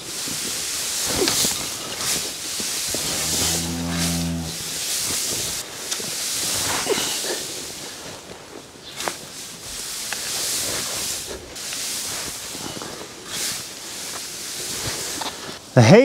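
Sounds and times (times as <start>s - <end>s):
steady hiss: 0.0s - 16.0s
cow mooing: 3.0s - 4.9s.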